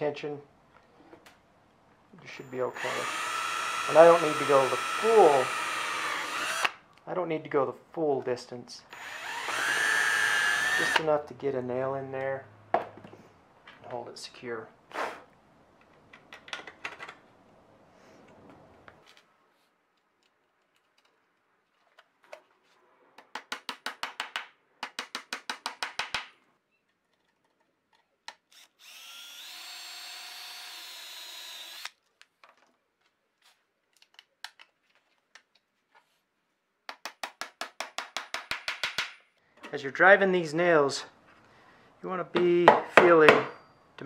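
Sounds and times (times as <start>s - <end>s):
drill boring through metal: 2.7s - 6.7s, 8.9s - 11.0s, 28.6s - 31.9s.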